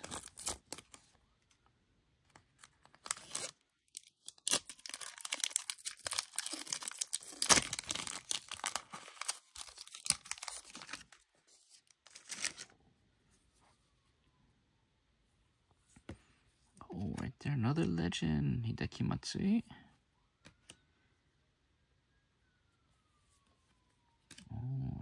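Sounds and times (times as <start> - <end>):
plastic wrapper crinkling: 2.6 - 12.8.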